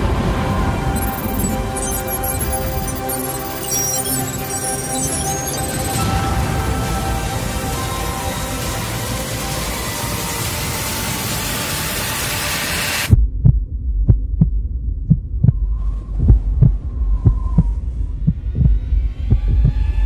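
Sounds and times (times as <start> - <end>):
loud wash of noise: 0.0 - 13.2
low rumbling drone: 0.0 - 20.0
heartbeat-like double thumps: 13.1 - 20.0.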